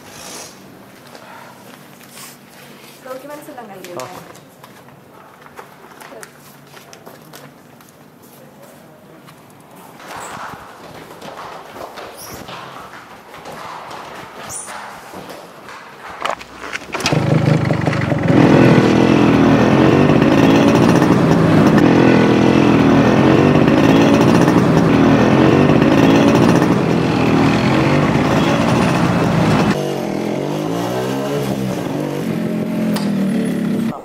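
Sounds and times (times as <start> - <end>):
two-stroke motorcycle engine revving: 16.9 - 34.0.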